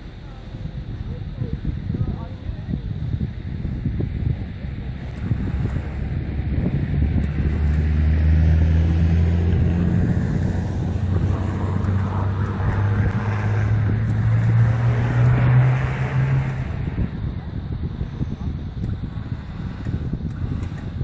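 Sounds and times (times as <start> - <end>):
car engine revving under load: 4.8 - 21.0.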